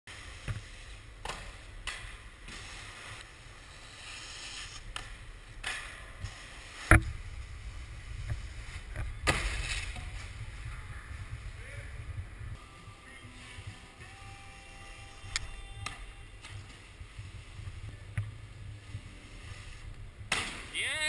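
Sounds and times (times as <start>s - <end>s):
snowboards scraping on snow and rail: 0.1s - 12.0s
steady low rumble: 4.8s - 20.8s.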